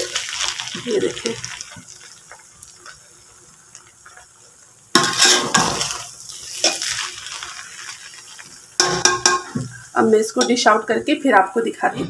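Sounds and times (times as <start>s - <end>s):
spoon clinking on pot: 8.8s - 9.6s.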